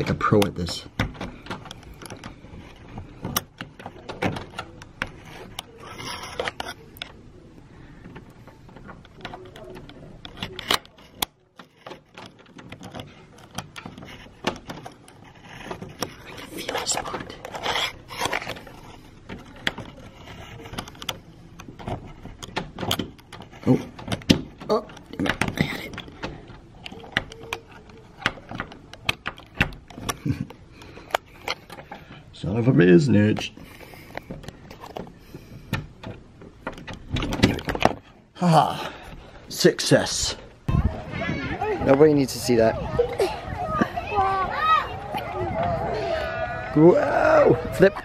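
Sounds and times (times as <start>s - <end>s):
metal doorknob clicking and rattling: 0.0s - 5.2s, 8.7s - 16.2s, 19.2s - 30.3s, 34.1s - 38.1s
doorknob rattling: 35.7s - 38.0s.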